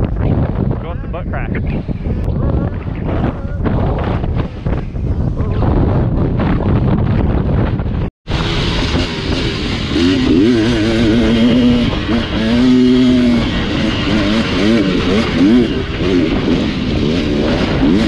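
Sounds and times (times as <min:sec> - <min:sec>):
wind buffeting microphone: 0:00.0 - 0:18.0
dirt bike engine revving: 0:08.3 - 0:18.0.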